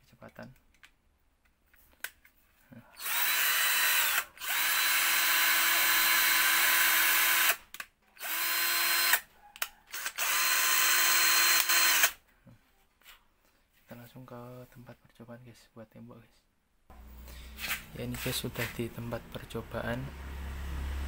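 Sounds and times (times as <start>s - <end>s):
cordless drill motor whining: 3.0s - 7.6s, 8.2s - 9.2s, 9.9s - 12.2s.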